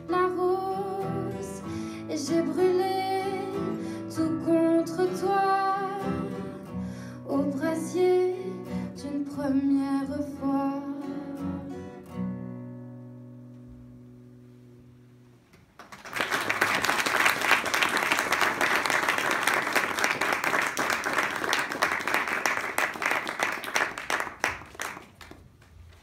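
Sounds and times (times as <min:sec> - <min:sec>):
audience applauding: 0:15.7 - 0:25.7.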